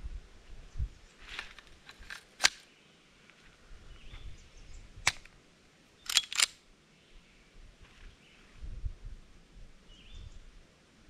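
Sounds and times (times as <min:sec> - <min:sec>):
pistol metallic clicks: 0:01.9 - 0:02.7, 0:05.0 - 0:05.3, 0:06.0 - 0:06.6.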